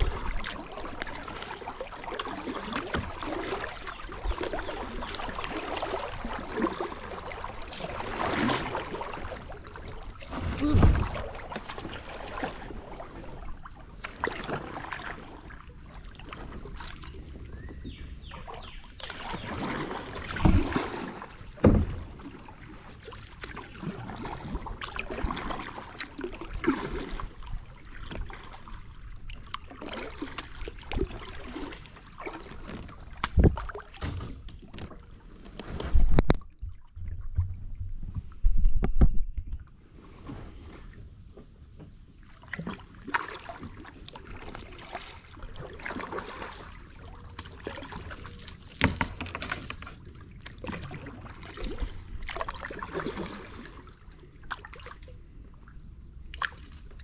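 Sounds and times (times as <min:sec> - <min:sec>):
paddle splashing in water: 0:00.0 - 0:38.4, 0:40.0 - 0:57.0.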